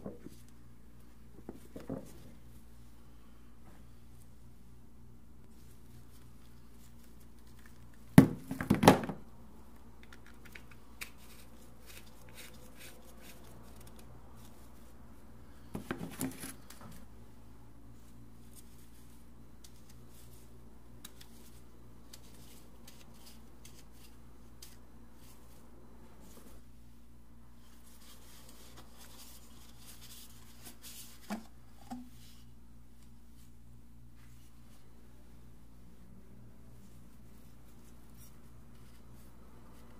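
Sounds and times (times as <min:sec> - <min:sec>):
steady low hum: 0:00.0 - 0:39.9
plastic hose rustling and knocking: 0:01.4 - 0:02.4, 0:15.7 - 0:17.0.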